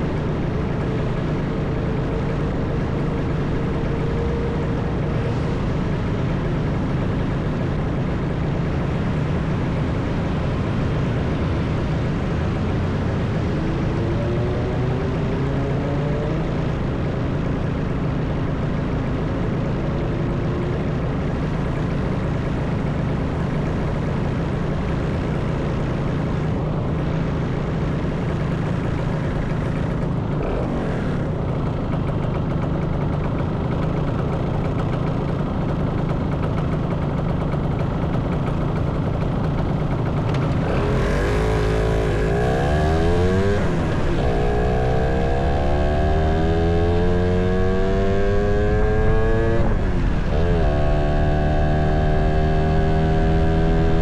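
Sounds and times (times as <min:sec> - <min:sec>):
motorcycle engine revving: 0:28.5 - 0:54.0.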